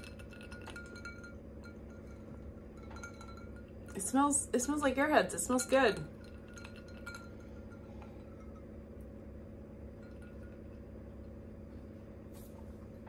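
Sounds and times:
ice clinking against glass: 0.0s - 4.0s, 5.5s - 8.7s, 10.0s - 10.8s
steady low hum: 0.0s - 13.0s.

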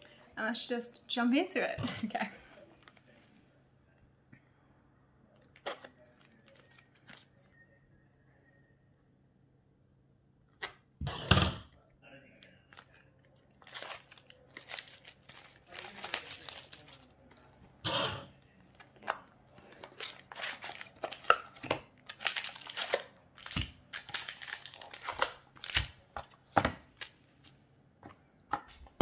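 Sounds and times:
wrapping ripping and crinkling: 5.5s - 7.3s, 12.7s - 17.6s, 18.6s - 27.6s
foil packs rustling: 12.7s - 17.6s, 18.7s - 27.2s.

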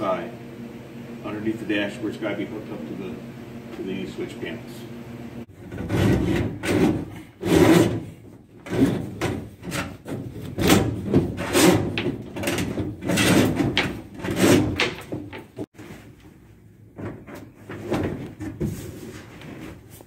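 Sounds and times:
plastic conduit scraping and knocking: 5.5s - 15.7s.

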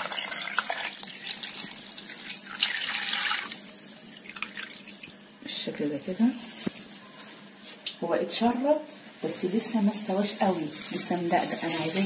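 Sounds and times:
milk pouring and splashing: 0.0s - 5.4s.

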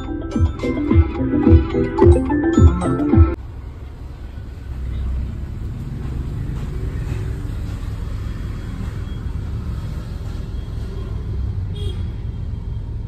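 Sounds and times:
car engine and tyres rumbling: 3.3s - 13.0s.

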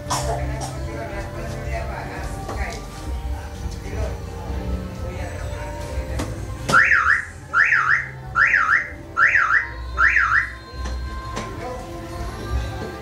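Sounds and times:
car alarm siren warbling: 6.7s - 10.6s.

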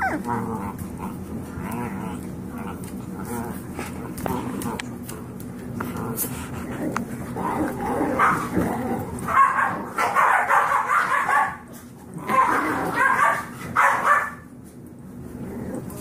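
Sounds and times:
puppies barking and yipping: 0.0s - 0.9s, 8.1s - 11.7s, 12.3s - 14.4s.

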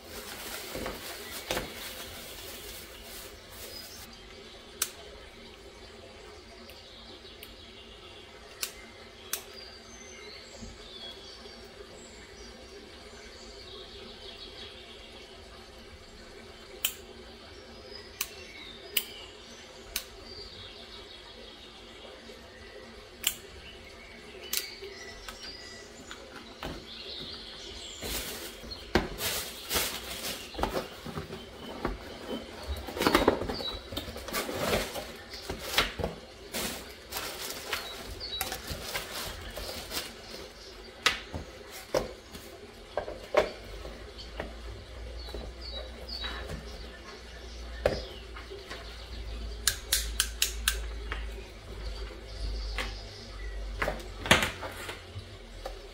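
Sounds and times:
packaging rustling: 0.0s - 4.1s, 26.6s - 40.7s.

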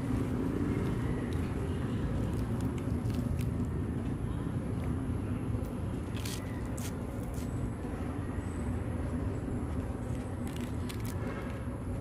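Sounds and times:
lettuce leaves being chewed: 0.1s - 3.8s, 6.0s - 7.5s, 10.1s - 11.2s.

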